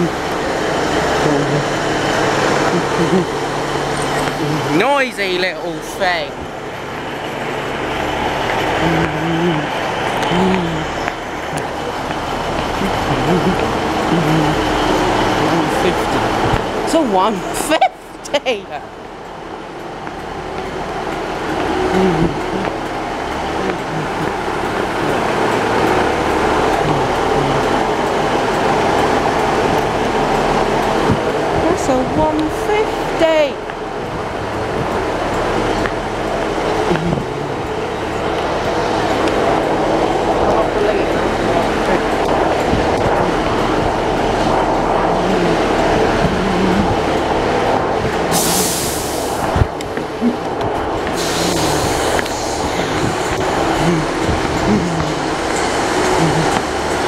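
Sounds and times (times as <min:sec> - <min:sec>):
diesel train engine rumble: 0:00.0 - 0:57.0.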